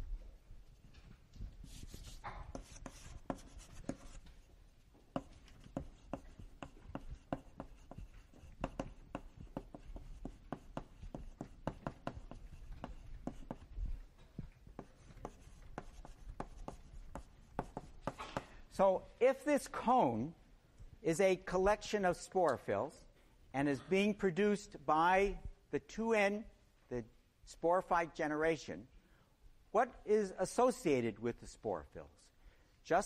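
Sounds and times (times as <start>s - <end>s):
writing on a board: 1.6s - 18.6s.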